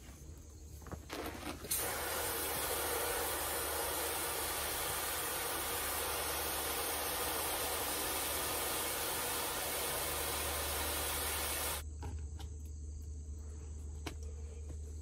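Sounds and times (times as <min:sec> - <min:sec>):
hose water hissing: 0:01.2 - 0:11.8.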